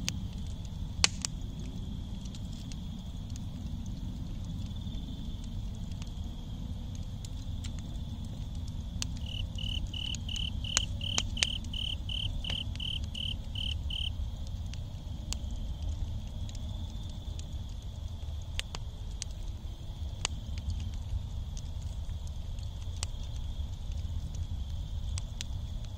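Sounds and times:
cricket chirping: 0.0 - 14.5
campfire crackling and popping: 0.0 - 25.9
high insect trill: 9.2 - 14.2.

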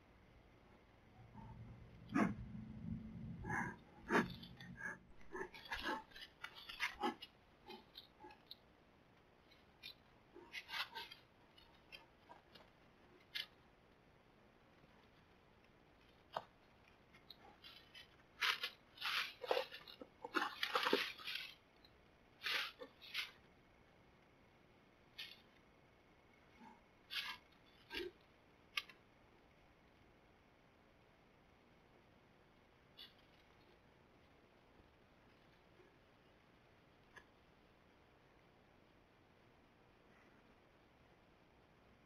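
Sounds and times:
rustling leaves and twigs: 3.5 - 8.6, 9.4 - 13.6, 15.0 - 23.4, 27.1 - 29.0.

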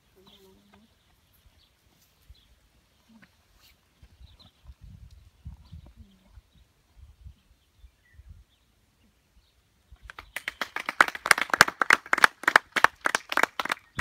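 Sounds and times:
people clapping: 10.0 - 14.0.

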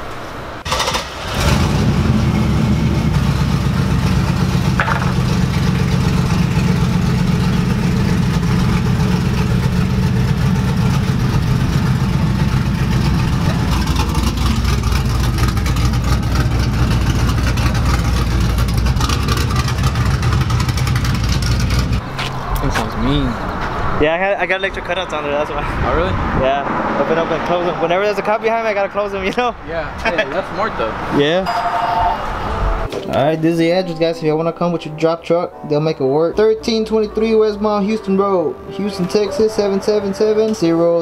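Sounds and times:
loud truck exhaust rumble: 0.2 - 24.0.

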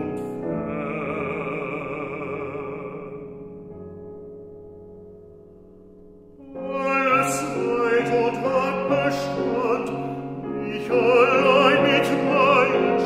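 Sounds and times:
man singing with vibrato: 0.0 - 3.6, 6.4 - 13.0
piano accompaniment: 0.0 - 13.0.

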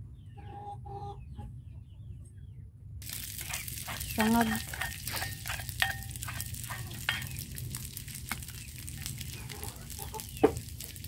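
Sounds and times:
metal spoon scraping a pot: 3.0 - 7.6
rice sizzling in a wok: 3.0 - 11.0.

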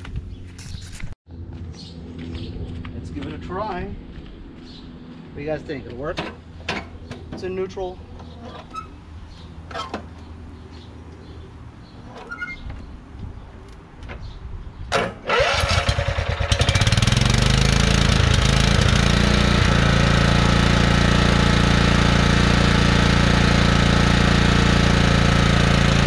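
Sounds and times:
starter motor cranking: 14.9 - 21.0
small gasoline engine running: 15.3 - 26.0.

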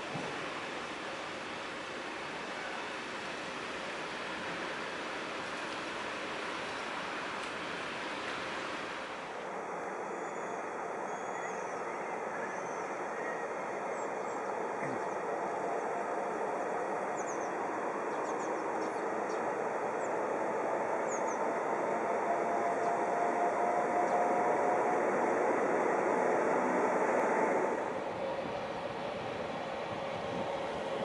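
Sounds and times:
faint whine: 0.0 - 31.0
train motors and wheels rumbling: 0.0 - 31.0.

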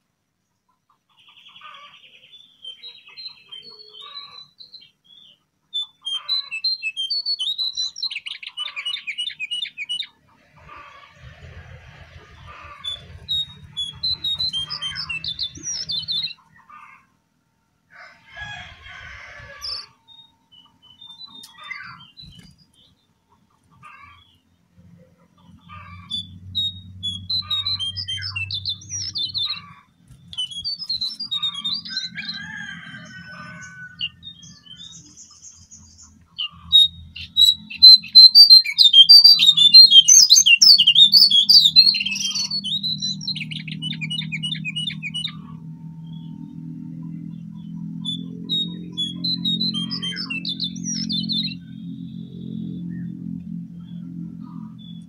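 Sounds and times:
bird singing high chirps: 1.3 - 16.8, 19.4 - 23.0, 25.5 - 55.0
low hum: 10.2 - 16.4, 43.8 - 55.0.

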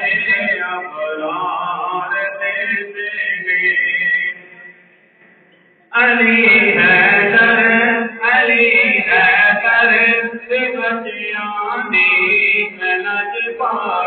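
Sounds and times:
man singing through a microphone: 0.0 - 4.6, 5.9 - 14.0.

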